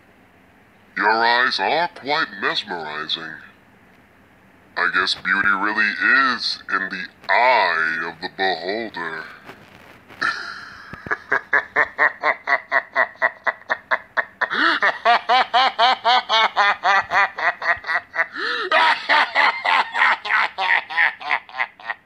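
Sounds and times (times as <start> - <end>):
person laughing maniacally: 7.3 - 9.3, 10.2 - 22.0.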